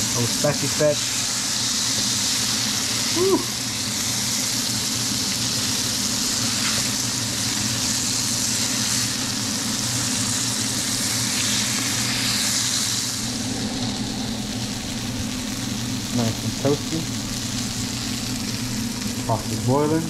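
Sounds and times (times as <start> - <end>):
fish sizzling in a pan: 0.0 - 19.9
low hum: 13.0 - 20.0.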